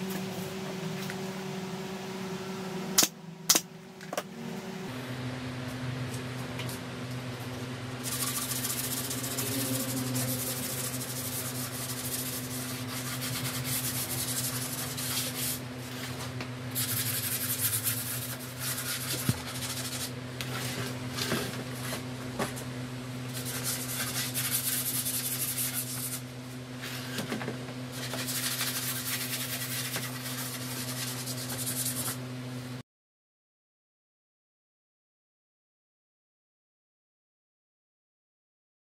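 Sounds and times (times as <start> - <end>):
steady low hum: 0.0 - 32.8
sandpaper rubbing wood: 8.0 - 16.1, 16.7 - 20.8, 23.4 - 26.2, 27.9 - 32.2.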